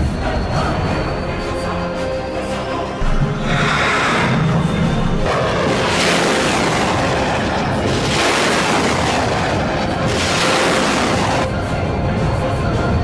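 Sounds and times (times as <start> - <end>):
fighter jet engines rushing: 2.8 - 11.7.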